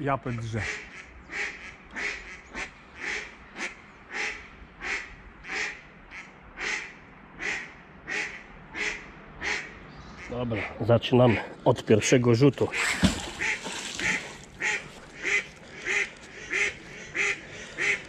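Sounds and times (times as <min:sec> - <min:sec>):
duck quacking loudly: 0:12.7 - 0:18.0.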